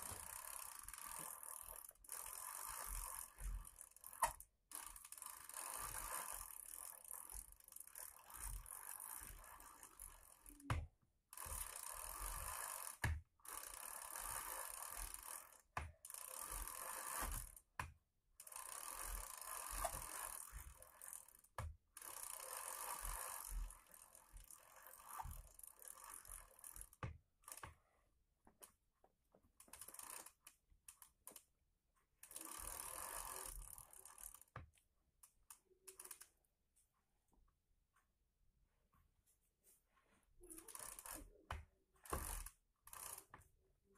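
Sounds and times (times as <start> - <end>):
bicycle freewheel ratchet clicking: 0.0 - 27.8, 29.6 - 31.5, 32.2 - 34.6, 35.4 - 36.4, 40.4 - 41.4, 42.0 - 43.4.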